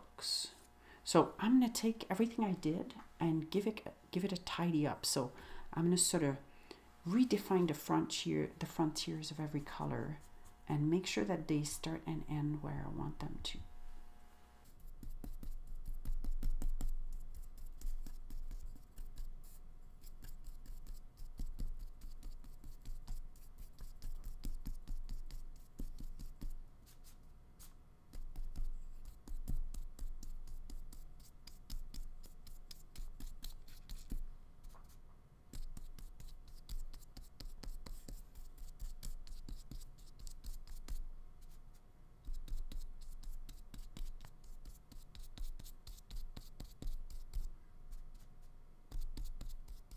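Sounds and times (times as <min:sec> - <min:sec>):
paintbrush scratching on paper: 0:14.6 - 0:49.9.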